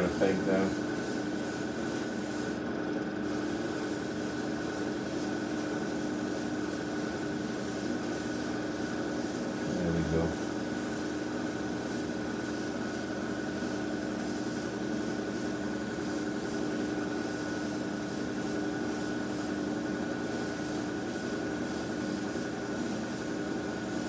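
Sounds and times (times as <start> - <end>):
airbrush air hiss: 0.0 - 2.6, 3.2 - 24.0.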